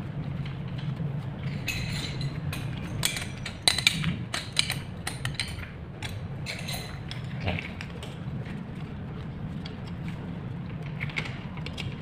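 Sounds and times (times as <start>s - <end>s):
steady low hum: 0.0s - 12.0s
metal clicks and clinks: 1.4s - 7.3s.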